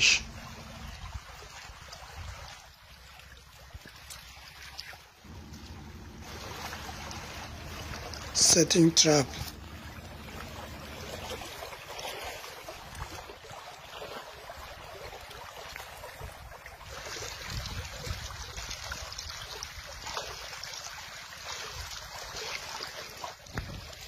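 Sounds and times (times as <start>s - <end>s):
shallow river flowing: 0.0s - 24.0s
wind on microphone: 17.3s - 18.9s, 23.5s - 24.0s.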